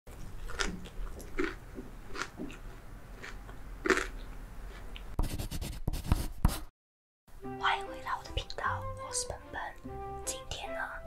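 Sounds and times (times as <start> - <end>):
crispy food being chewed: 0.1 - 5.2.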